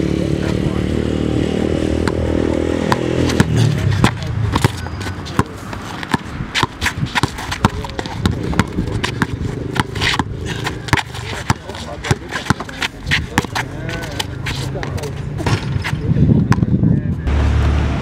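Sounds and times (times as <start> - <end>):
vehicle engine humming: 0.0 - 16.0, 17.2 - 18.0
basketball dribbling on bricks: 2.0 - 15.8.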